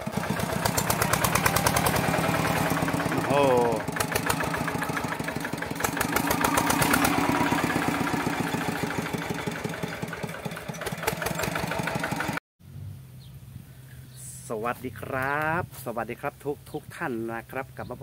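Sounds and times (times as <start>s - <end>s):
diesel engine running under load: 0.0s - 12.4s.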